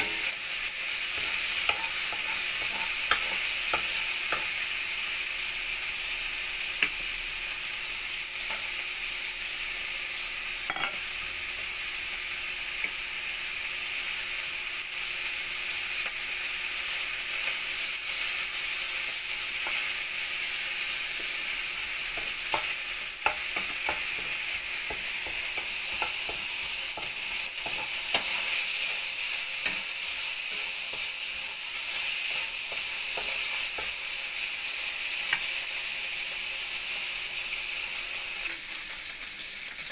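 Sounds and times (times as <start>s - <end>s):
bacon sizzling in a wok: 0.0s - 39.9s
wooden spoon scraping a pan: 1.1s - 4.6s.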